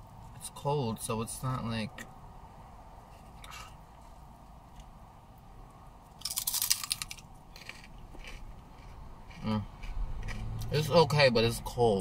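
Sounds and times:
chewing clicks: 6.2s - 10.7s
crunching bite into chip: 6.2s - 10.7s.

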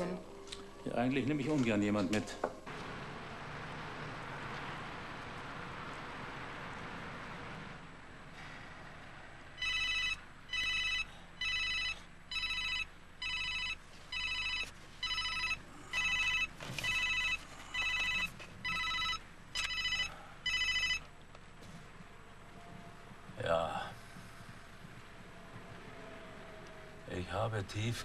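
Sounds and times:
phone ringtone beeps: 9.6s - 21.0s.

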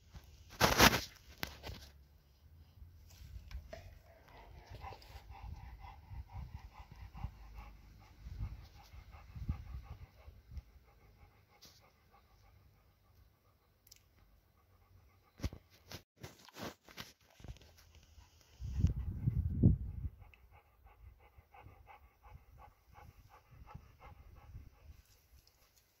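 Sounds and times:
dog panting: 3.6s - 15.8s, 18.0s - 25.9s.

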